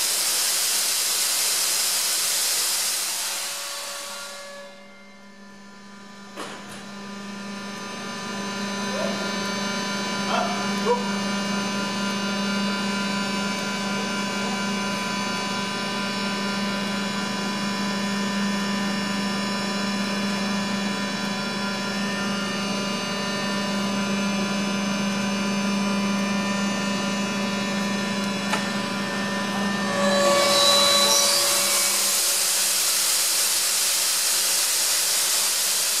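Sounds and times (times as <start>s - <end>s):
rushing hiss of air: 0.0s - 4.4s, 31.2s - 36.0s
air compressor humming: 24.5s - 36.0s.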